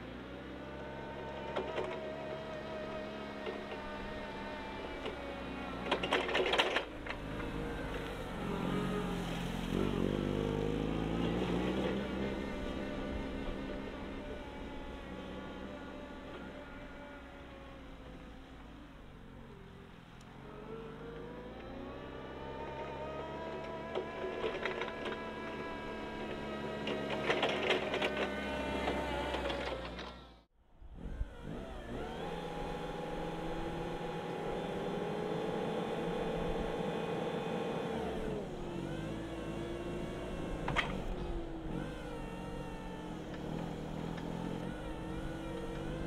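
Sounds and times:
forklift engine running: 0.0 - 46.0.

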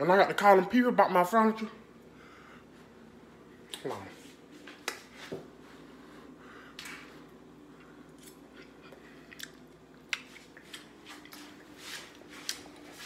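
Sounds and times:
person chewing food: 6.7 - 13.0.

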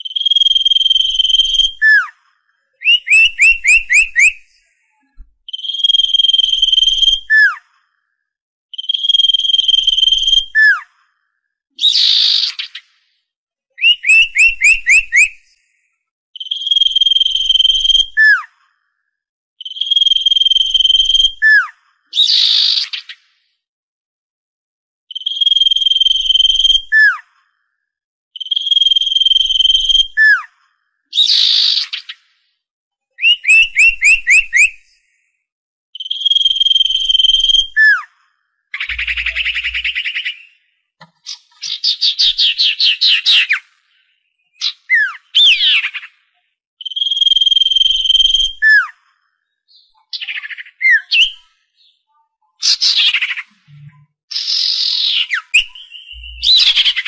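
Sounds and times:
bird whistled song: 0.0 - 8.1, 8.7 - 13.0, 13.8 - 18.6, 19.6 - 23.3, 25.1 - 27.4, 28.4 - 32.3, 33.2 - 35.3, 36.0 - 57.0
chattering bird notes: 38.8 - 40.4, 55.6 - 57.0
harsh rasping bird note: 38.9 - 40.2.

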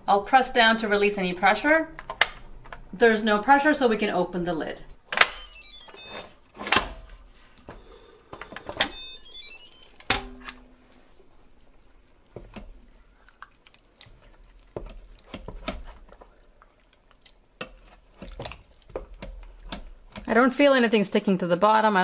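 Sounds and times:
pressure cooker electronic chime: 5.4 - 6.3, 8.8 - 10.2
lid clunk: 10.1 - 10.7
wooden spoon scraping metal pot: 14.1 - 16.4, 17.6 - 20.4.

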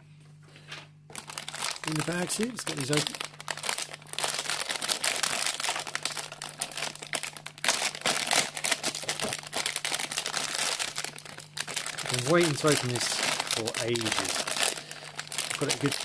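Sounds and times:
plastic bag crinkling: 1.1 - 16.0.

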